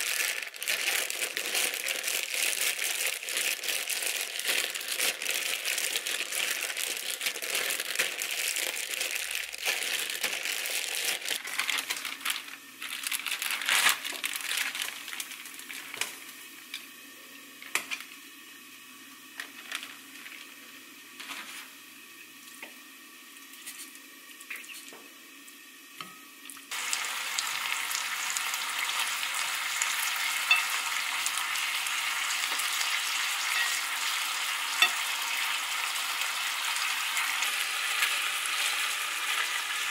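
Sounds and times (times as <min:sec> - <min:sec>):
plastic bag crinkling: 0:00.0 - 0:16.0, 0:19.4 - 0:20.4
meat sizzling in a pan: 0:00.0 - 0:17.1, 0:25.2 - 0:39.9.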